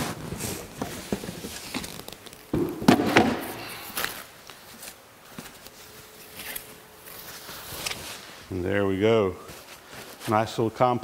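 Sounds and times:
welder handling knocks and thumps: 2.5s - 3.6s.

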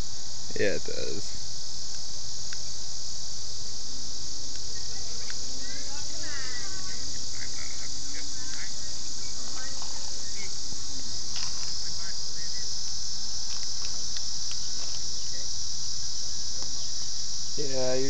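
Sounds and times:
crickets trilling: 0.0s - 18.0s.

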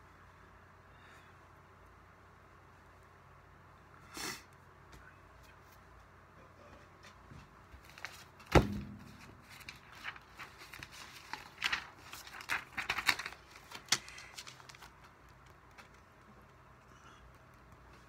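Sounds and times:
paper pages flipping: 7.8s - 16.3s
sharp thump: 8.5s - 9.4s.

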